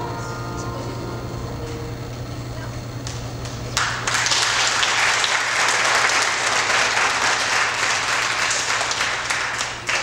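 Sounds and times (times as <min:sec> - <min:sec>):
audience applauding: 0:03.0 - 0:10.0.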